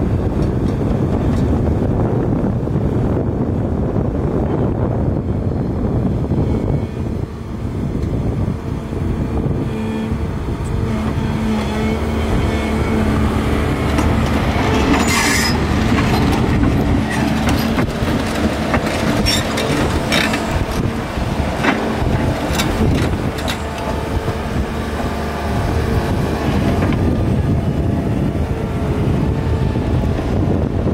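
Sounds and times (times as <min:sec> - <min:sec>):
excavator engine and hydraulics: 0:00.0 - 0:30.9
metal tracks clanking and squealing: 0:09.4 - 0:25.2.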